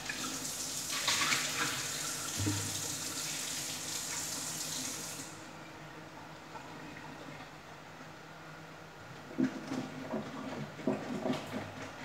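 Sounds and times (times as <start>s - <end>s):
tap water running into sink: 0.0s - 5.3s.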